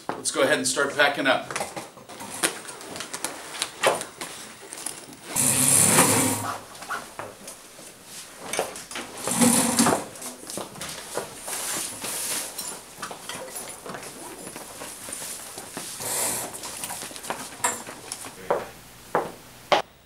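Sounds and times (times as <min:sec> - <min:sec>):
plastic bags rustling: 0:02.1 - 0:05.4, 0:10.0 - 0:18.5
footsteps: 0:02.1 - 0:19.9.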